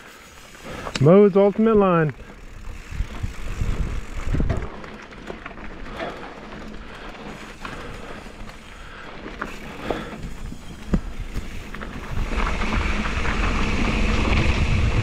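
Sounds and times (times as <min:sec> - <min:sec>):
tyres crunching over stones: 0:00.7 - 0:14.2
bike knocking on rocks: 0:01.6 - 0:08.7, 0:09.3 - 0:14.8
wind on microphone: 0:02.6 - 0:04.8, 0:10.3 - 0:15.0.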